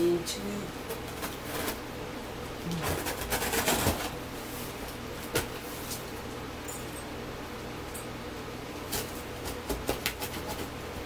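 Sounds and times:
cardboard scraping and rustling: 2.8s - 6.0s.

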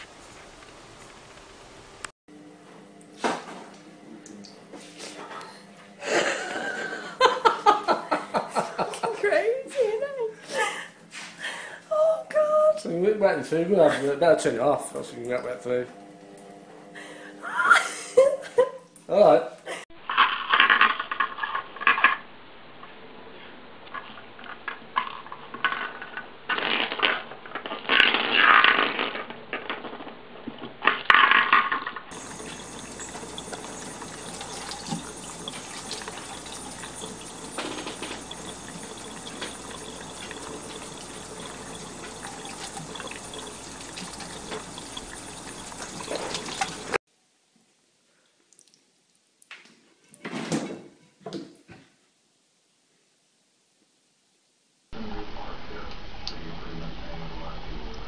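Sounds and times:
tap running into metal sink: 32.1s - 47.0s.

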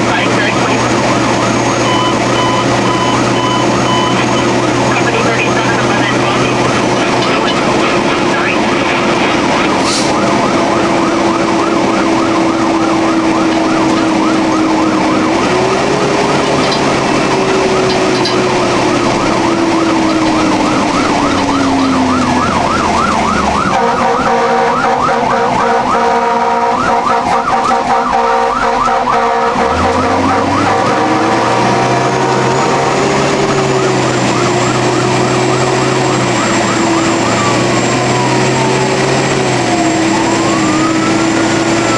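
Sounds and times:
siren wail: 0.0s - 41.9s
truck engine: 0.0s - 41.9s
electronic siren yelp: 0.1s - 41.9s
air horn blast: 23.6s - 33.9s.

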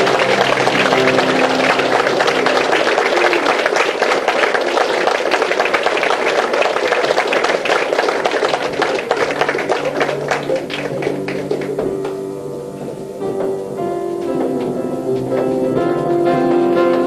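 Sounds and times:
audience applauding: 0.0s - 12.2s.

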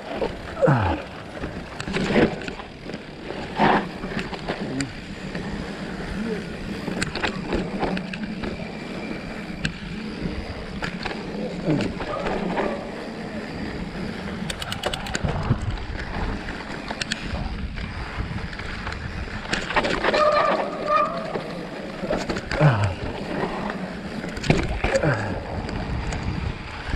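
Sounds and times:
bike clattering over bumps: 0.0s - 13.0s
bike tyres rumbling over dirt: 0.0s - 26.9s.

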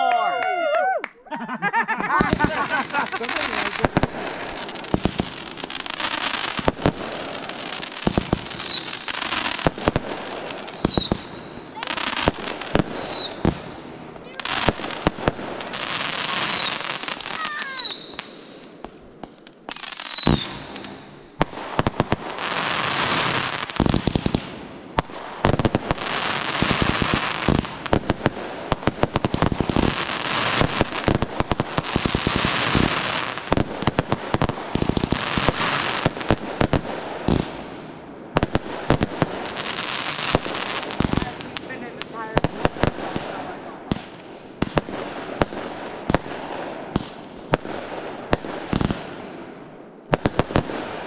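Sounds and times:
fireworks crackling and popping: 0.0s - 51.0s
falling firework whistles: 7.5s - 9.7s, 10.3s - 13.6s, 15.8s - 21.9s.

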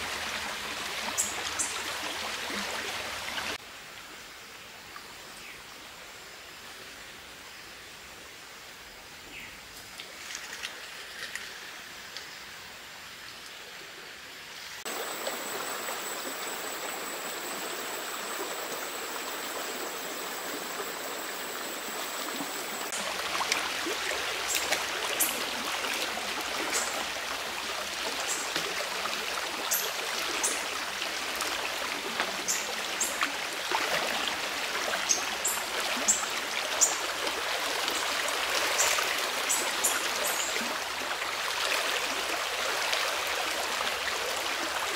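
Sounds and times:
faint forest ambience: 0.0s - 44.9s
stream flowing: 0.0s - 44.9s
small water splashes: 22.9s - 44.9s.

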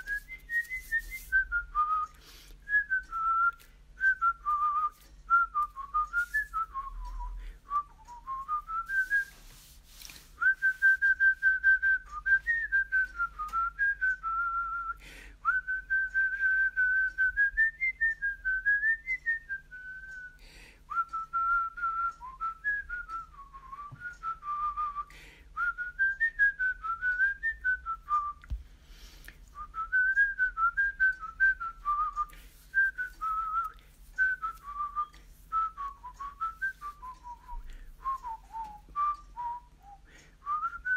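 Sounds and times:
person whistling a tune: 0.0s - 40.9s.

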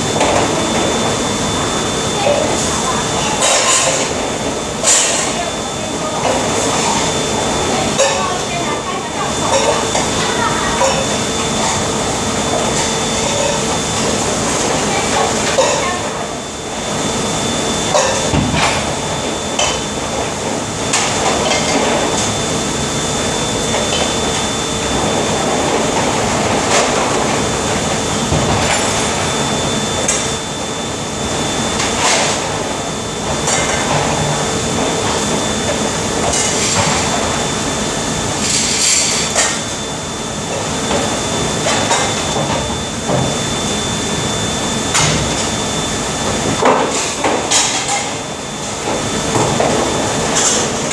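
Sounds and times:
steady mechanical hum: 0.0s - 50.9s
dishes clattering in metal sink: 46.6s - 48.2s, 49.4s - 50.9s.

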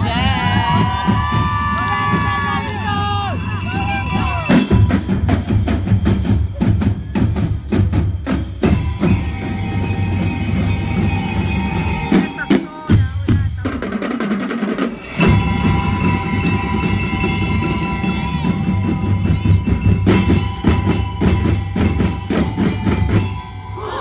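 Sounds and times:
bell-lyre notes ringing: 0.0s - 13.0s, 15.0s - 24.0s
marching drums beating: 0.0s - 23.6s.

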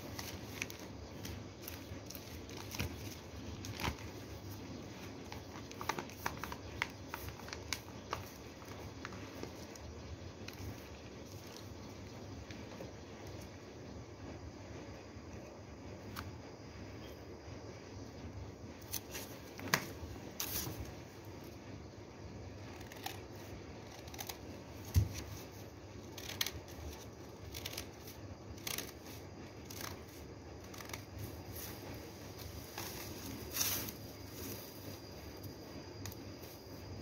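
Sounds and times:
paper rustling: 0.0s - 9.8s, 27.5s - 35.0s
scissors snipping paper: 26.1s - 26.8s, 27.4s - 29.1s.

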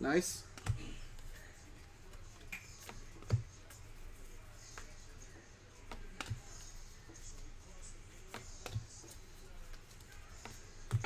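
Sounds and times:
cards clicking and tapping: 0.5s - 1.4s, 2.1s - 3.8s, 4.6s - 6.7s, 8.2s - 11.0s.

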